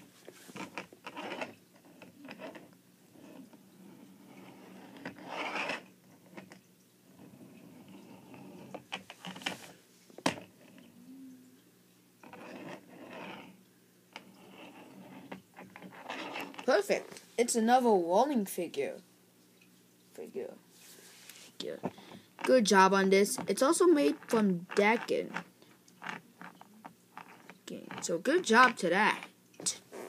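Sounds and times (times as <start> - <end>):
toy wheels rolling on table: 0.5 - 6.6, 12.2 - 13.6, 14.2 - 16.7, 23.4 - 29.3.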